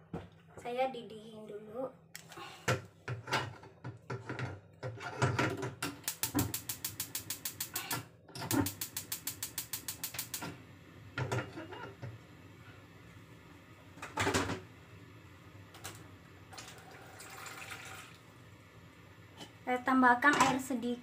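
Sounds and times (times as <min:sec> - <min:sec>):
gas stove igniter clicking: 0:05.8 - 0:10.6.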